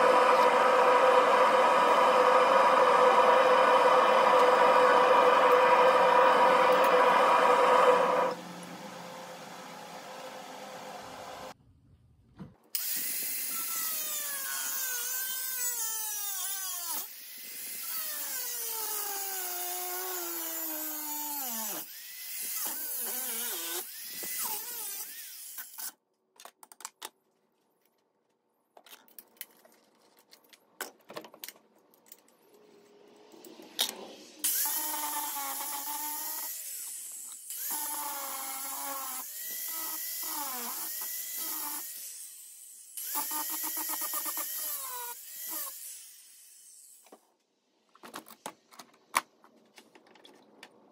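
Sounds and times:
angle grinder grinding steel: 0.0 - 8.4, 33.4 - 47.0.

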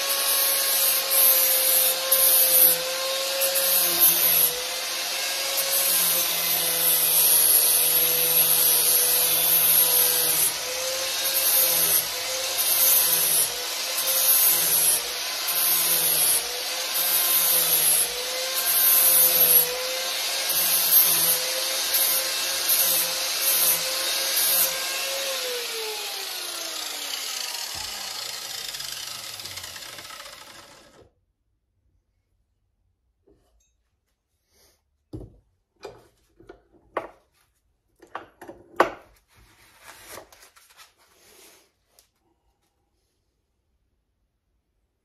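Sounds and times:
angle grinder sanding wood: 0.0 - 31.0
grinder motor winding down: 20.5 - 31.1.

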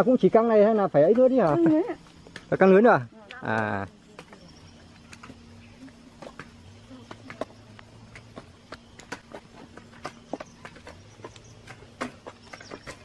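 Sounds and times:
footsteps on soil: 3.5 - 13.0
hoes chopping dry stony soil: 7.0 - 13.0.

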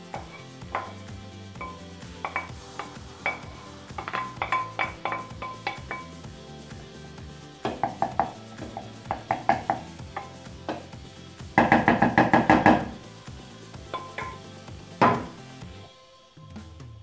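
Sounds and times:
wooden spoon scraping frying pan: 0.0 - 1.1, 2.2 - 6.1
background music: 0.0 - 17.0
spoon knocking on pan: 0.1 - 6.1, 7.6 - 10.8, 13.9 - 14.4, 15.0 - 15.4.

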